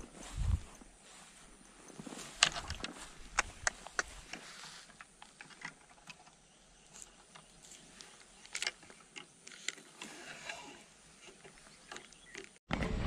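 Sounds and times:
footsteps through grass: 0.0s - 5.4s.

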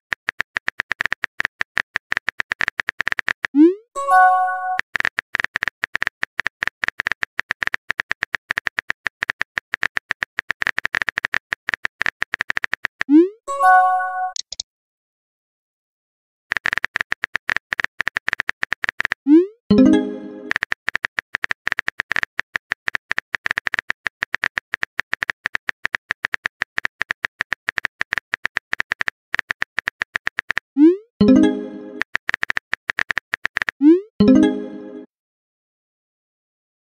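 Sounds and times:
phone keyboard typing clicks: 0.1s - 3.6s, 4.8s - 13.1s, 14.3s - 14.6s, 16.5s - 34.6s
phone keyboard key clicks: 5.0s - 13.1s, 14.4s - 14.6s.

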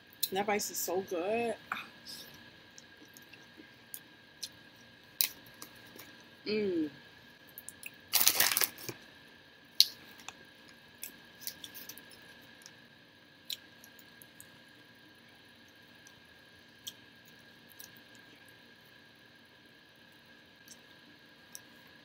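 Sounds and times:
air conditioner whine: 0.0s - 22.0s
person humming: 6.5s - 6.9s.

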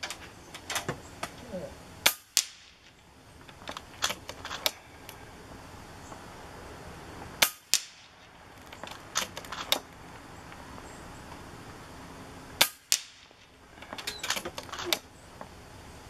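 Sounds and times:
air rifle shot: 2.0s - 3.0s, 7.4s - 8.3s, 12.6s - 13.5s
pellet striking steel target: 2.0s - 3.0s, 7.4s - 8.3s, 12.6s - 13.5s.

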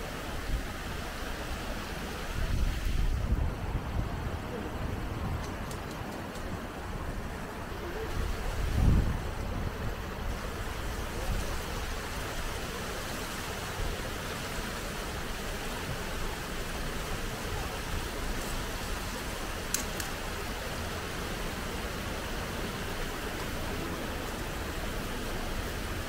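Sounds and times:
rushing spring water: 0.0s - 26.0s
sharp clicks: 5.4s - 6.5s, 19.7s - 20.2s.

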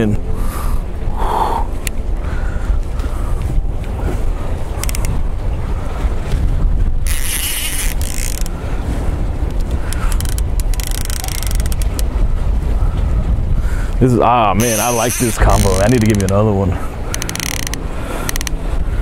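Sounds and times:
wind buffeting microphone: 0.0s - 19.0s
fishing reel whirring: 4.8s - 5.2s, 7.0s - 8.6s, 9.5s - 12.1s, 14.6s - 16.4s, 17.0s - 18.6s.

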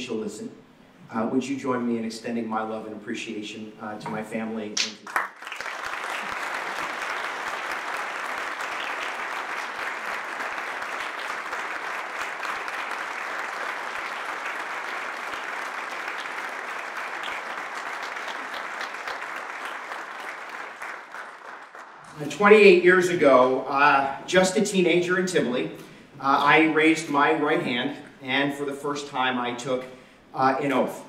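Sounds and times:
audience applause: 5.0s - 22.1s.

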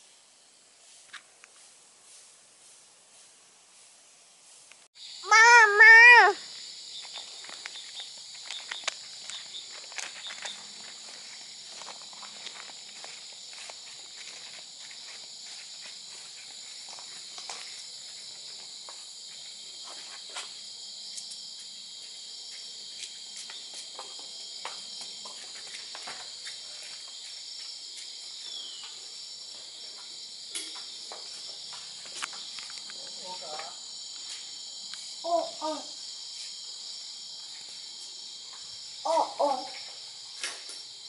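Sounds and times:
crickets and night insects chorus: 5.0s - 41.0s
faint voice: 5.2s - 6.4s
footsteps: 7.0s - 34.7s.

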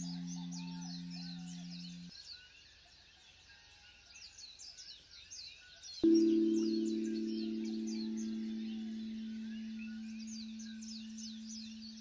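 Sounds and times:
birds chirping: 0.0s - 2.1s, 6.0s - 12.0s
singing bowl tone: 0.0s - 2.1s, 6.0s - 12.0s.

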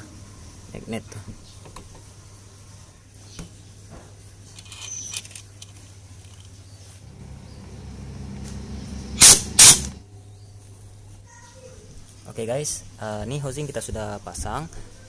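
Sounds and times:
metal parts clicking: 4.6s - 6.6s
low steady hum: 4.6s - 11.3s.

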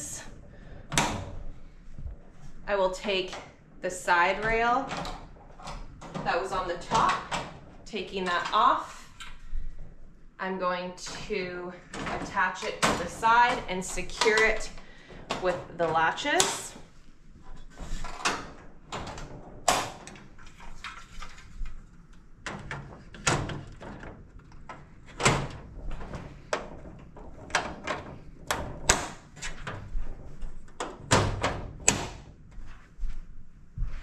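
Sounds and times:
crate panels knocking and clacking: 22.4s - 32.4s.

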